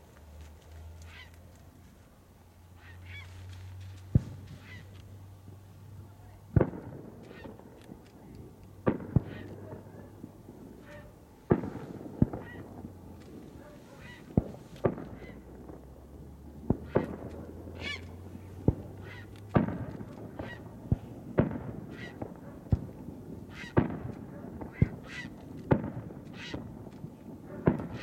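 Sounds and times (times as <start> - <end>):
short pitched calls: 1.0 - 1.4, 2.7 - 3.5, 4.2 - 5.0, 17.7 - 18.2, 23.5 - 23.8, 26.3 - 26.7
firework shells bursting: 6.5 - 15.9, 16.7 - 28.0.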